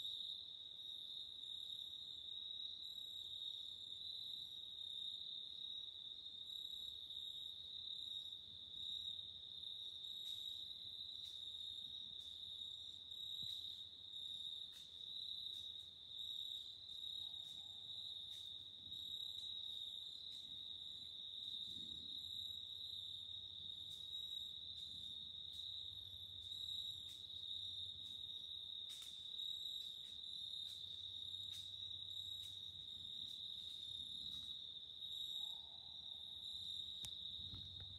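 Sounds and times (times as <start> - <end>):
faint ticks: 10.2 - 12.5, 14.6 - 15.9, 23.8 - 34.6.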